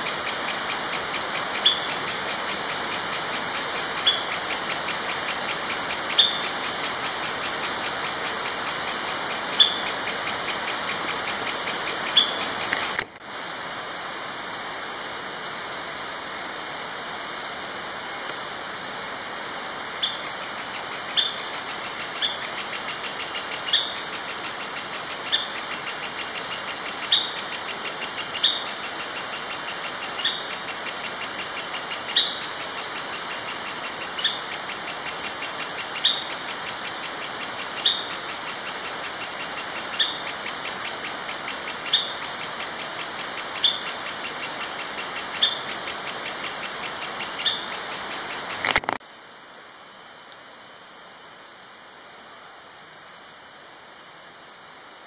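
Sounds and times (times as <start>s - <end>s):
woodpecker calling: 0.0s - 13.0s, 20.0s - 48.6s.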